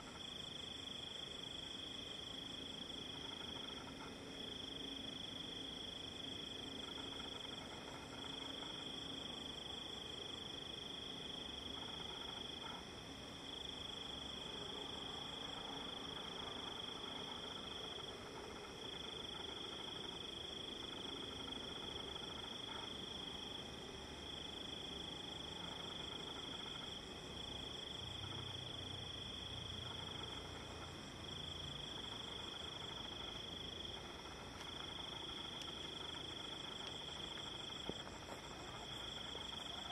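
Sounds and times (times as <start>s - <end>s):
crickets trilling: 0.0s - 39.9s.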